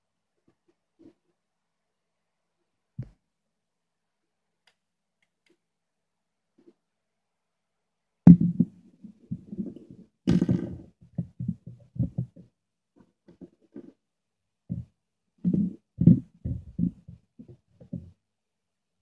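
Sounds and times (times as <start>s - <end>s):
handling thumps and rustles: 8.3s - 12.5s, 15.5s - 18.2s.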